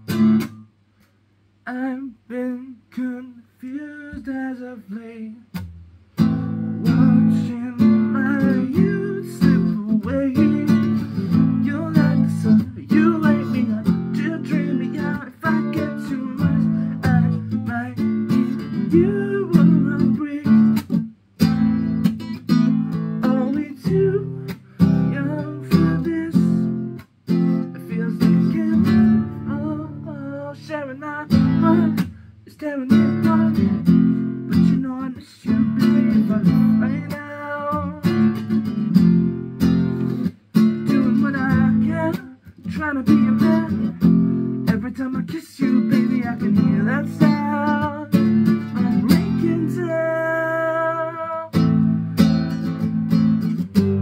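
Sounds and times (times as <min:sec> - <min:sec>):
acoustic guitar strumming chords: 0:00.0 - 0:00.7, 0:02.5 - 0:54.0.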